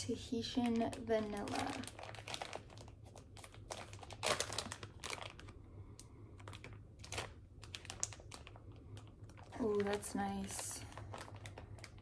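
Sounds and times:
plastic bag crinkling: 0.2s - 12.0s.

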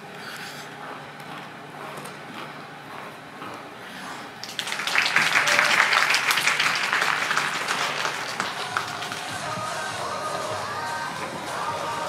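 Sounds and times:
audience applause: 4.4s - 9.9s.

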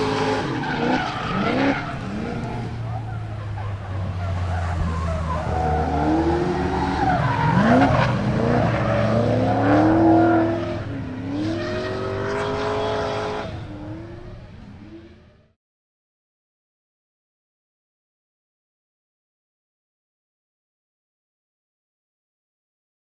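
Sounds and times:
engine revving: 0.0s - 2.9s, 4.4s - 15.4s
tyres skidding and squealing: 0.0s - 15.6s.

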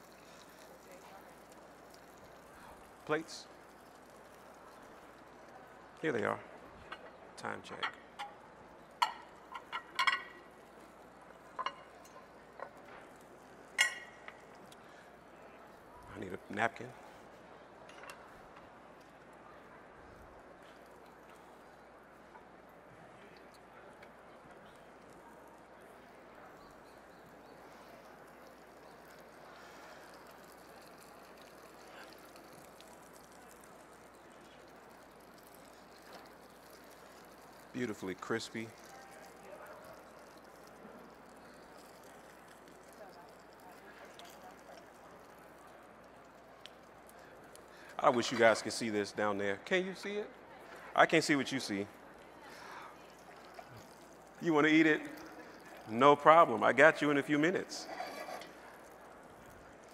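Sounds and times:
plates and utensils clinking: 9.0s - 10.5s
small clink: 13.7s - 14.5s.

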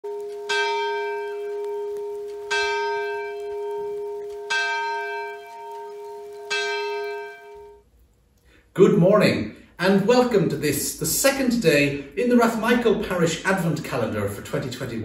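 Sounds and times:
church bell tolling: 0.1s - 7.8s.

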